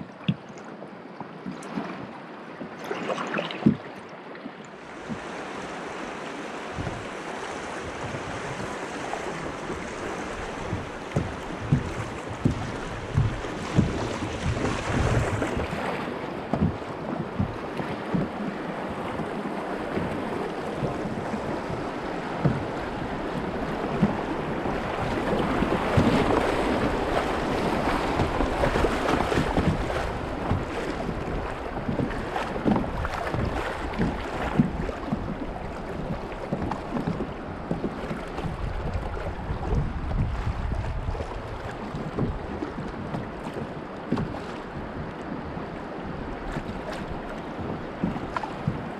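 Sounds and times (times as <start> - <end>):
paddle strokes splashing: 0.0 - 48.9
river water rushing: 2.8 - 37.6
wind buffeting microphone: 5.0 - 48.9.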